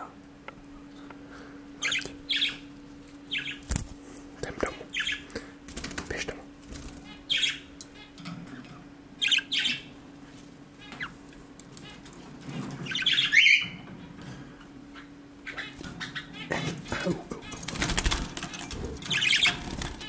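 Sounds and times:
faint steady hum: 0:00.0 - 0:20.0
budgerigars squawking: 0:01.8 - 0:02.7, 0:03.3 - 0:03.6, 0:04.7 - 0:05.4, 0:07.0 - 0:08.2, 0:09.2 - 0:10.0, 0:10.8 - 0:11.2, 0:12.8 - 0:13.8, 0:14.9 - 0:20.0.

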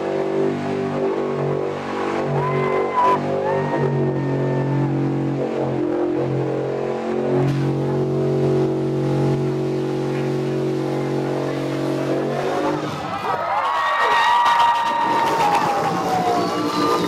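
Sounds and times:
truck engine at high revs: 0:00.0 - 0:13.3.

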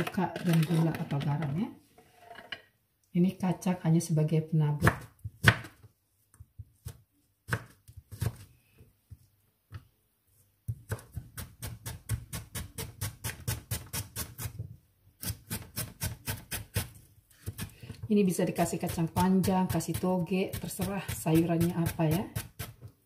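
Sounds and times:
knife chopping on cutting board: 0:04.8 - 0:05.9, 0:10.7 - 0:14.6.

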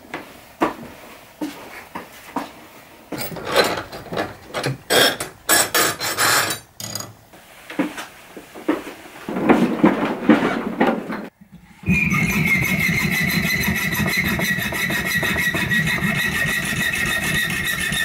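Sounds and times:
wooden shelf unit scraping: 0:03.2 - 0:06.7, 0:07.8 - 0:11.3
metal rods clinking and rattling: 0:03.2 - 0:07.1.

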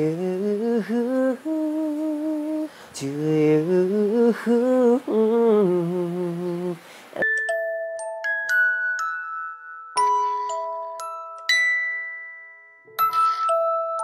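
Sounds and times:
person humming a tune: 0:00.0 - 0:07.4.

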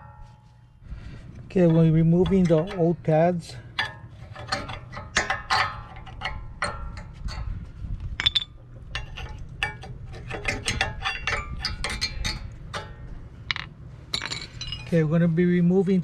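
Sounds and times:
metal clicks and scrapes: 0:01.6 - 0:07.5, 0:08.2 - 0:14.4.

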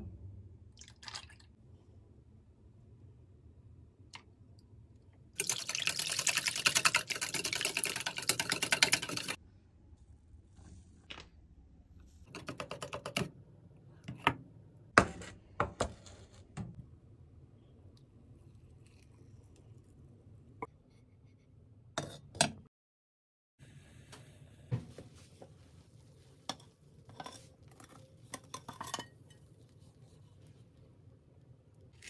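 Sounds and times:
whisk rattling in metal bowl: 0:05.4 - 0:09.4.

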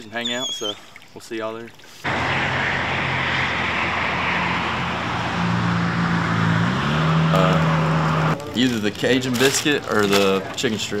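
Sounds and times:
cars going by: 0:02.0 - 0:08.5
low engine hum: 0:02.1 - 0:08.5.

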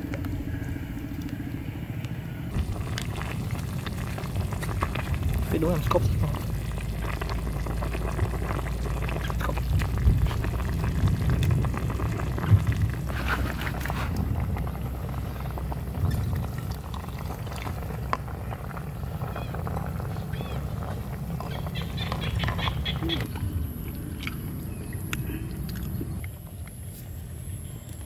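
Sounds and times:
low rumble: 0:00.0 - 0:28.0.

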